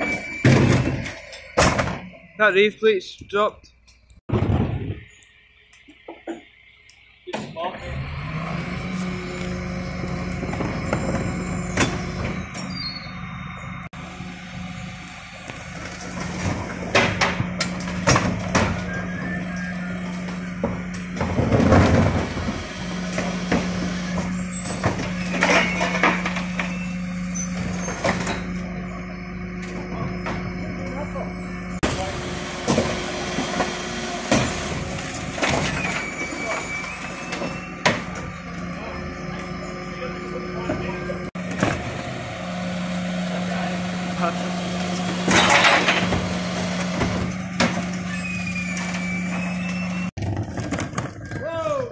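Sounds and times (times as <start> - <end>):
truck engine and hydraulics humming: 0.0 - 51.4
bins clanging against lifter: 15.9 - 28.8, 44.8 - 51.4.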